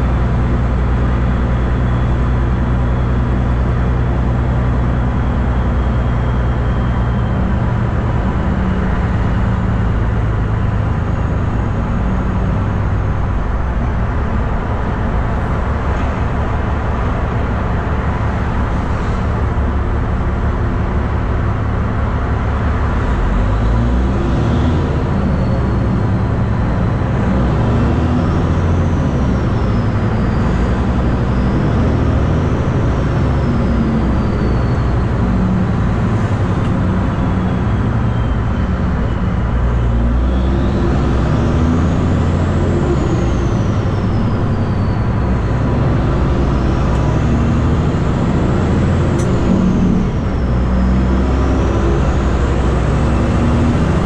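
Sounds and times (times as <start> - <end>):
diesel truck engine rumble: 0.0 - 54.0.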